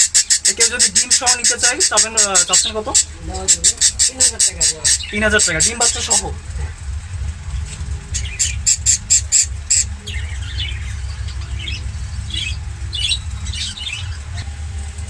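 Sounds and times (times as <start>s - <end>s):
parrots chirping softly: 0.0s - 6.8s, 7.5s - 14.6s
small parrots squawking: 0.0s - 6.8s, 7.6s - 14.4s
steady low hum: 0.0s - 15.0s.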